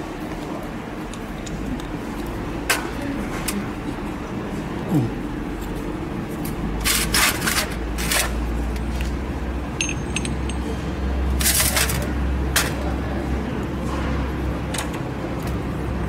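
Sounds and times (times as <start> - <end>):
steady low hum: 0.0 - 16.0
metal parts clinking on steel tray: 9.8 - 10.7
bright metallic ring: 9.8 - 10.9.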